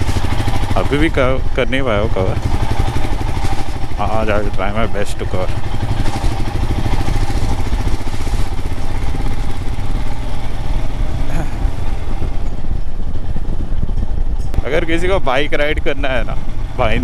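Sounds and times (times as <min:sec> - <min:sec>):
motorcycle engine running: 0:00.0 - 0:17.0
wind rumble on microphone: 0:11.0 - 0:17.0.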